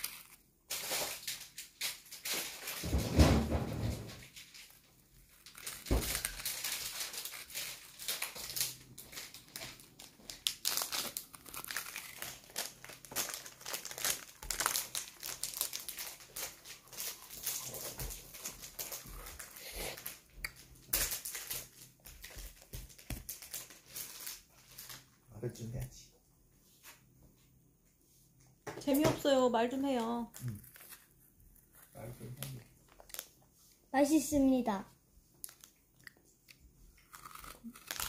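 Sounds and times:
child crunching candy: 0.0s - 2.8s, 4.3s - 25.1s, 30.3s - 33.4s, 35.4s - 38.0s.

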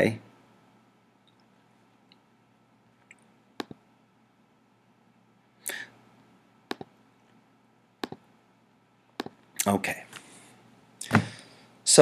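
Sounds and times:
computer mouse clicking: 3.6s - 3.8s, 6.7s - 6.9s, 8.0s - 8.2s, 9.2s - 9.4s.

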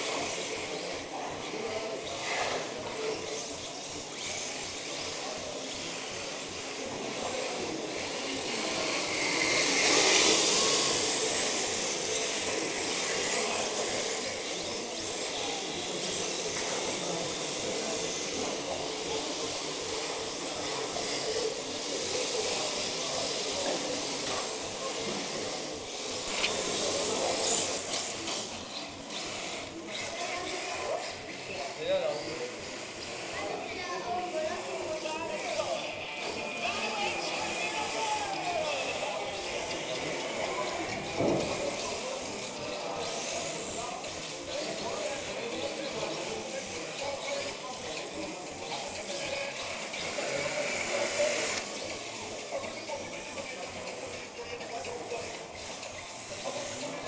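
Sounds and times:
toy car motor whirr: 0.0s - 57.0s
tyres hissing on floor: 32.3s - 57.0s.

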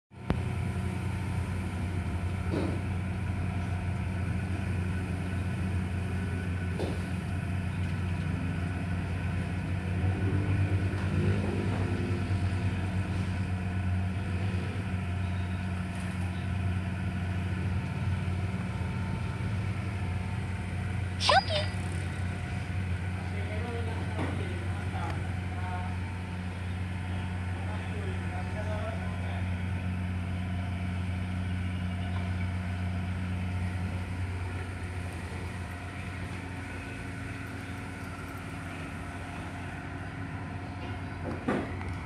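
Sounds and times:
engine idling: 0.1s - 42.0s.

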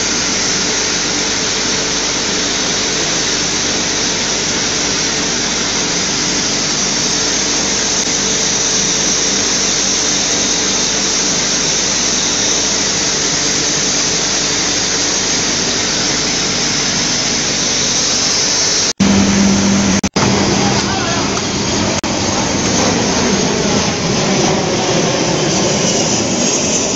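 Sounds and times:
low hum: 13.2s - 26.9s.

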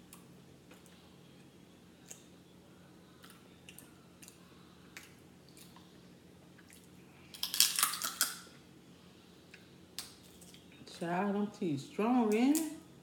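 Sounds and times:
chewing mouth sounds: 6.6s - 8.4s.

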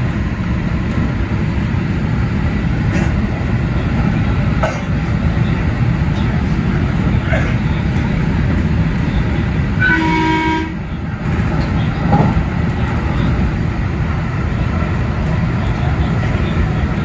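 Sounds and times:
train running on rails: 0.0s - 17.0s
train horn blast: 9.8s - 11.0s.

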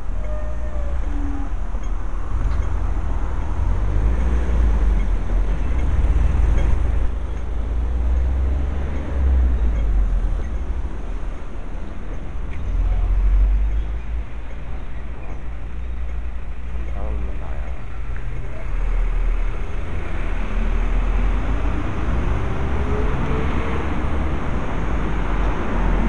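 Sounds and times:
road traffic noise: 0.0s - 26.0s.

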